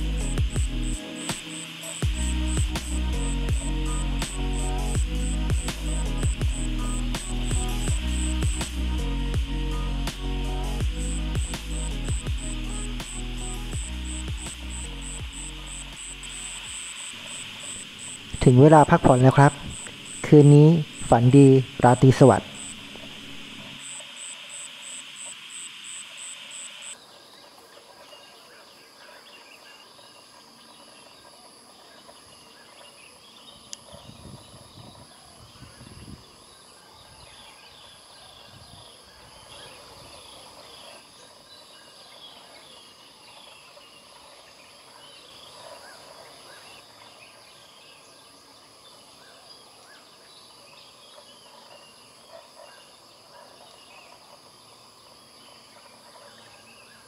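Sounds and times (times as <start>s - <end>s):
birds chirping: 0.0s - 27.0s
high-pitched insect drone: 0.0s - 27.1s
insects trilling: 0.0s - 57.0s.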